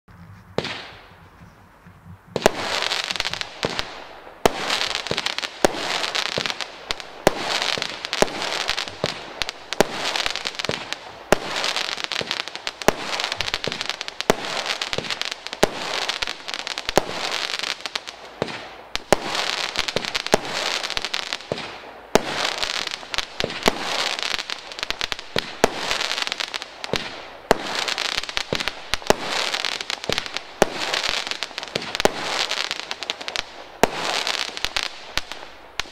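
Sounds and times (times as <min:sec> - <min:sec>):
firework reports: 0:00.1 - 0:17.4
firework crackling: 0:00.1 - 0:35.9.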